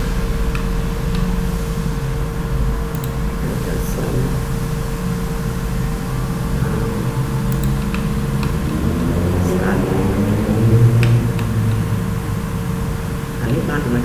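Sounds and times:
mechanical hum: 0.0s - 14.0s
faint clicks: 2.9s - 3.2s.

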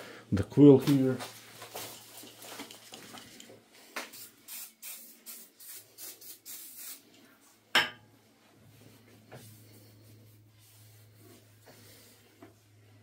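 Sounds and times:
aerosol spray can hissing: 4.1s - 7.0s.

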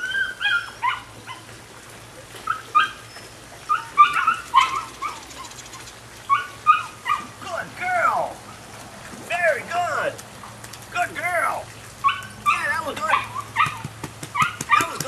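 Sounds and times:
puppy whining and yipping: 0.0s - 1.5s, 2.4s - 7.3s, 12.0s - 15.0s.

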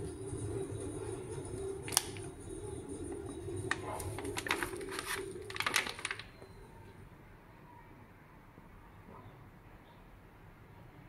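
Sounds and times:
steady low hum: 0.0s - 7.1s
crackles: 3.2s - 6.6s
plastic pouch crinkling: 3.7s - 6.4s.

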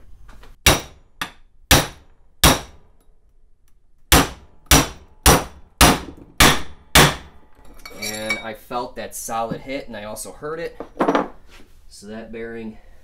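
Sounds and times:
steel pipe clanging on metal: 7.6s - 8.6s.

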